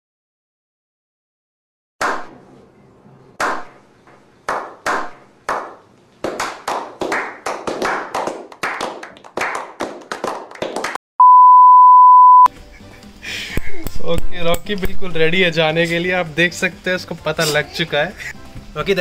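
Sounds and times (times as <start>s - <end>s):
hands clapping: 3.4s - 11.0s
high test-tone beep: 11.2s - 12.5s.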